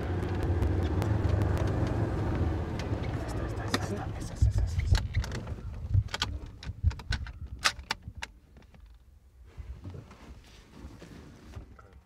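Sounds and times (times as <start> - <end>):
vehicle rattling and knocking: 0.0 - 7.4
low vehicle rumble: 0.0 - 7.5.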